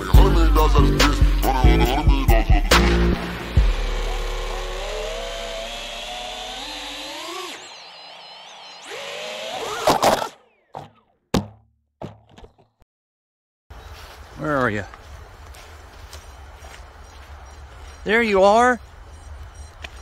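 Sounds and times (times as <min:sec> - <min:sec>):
drone motors whining: 0:00.0 - 0:11.2, 0:18.8 - 0:20.0.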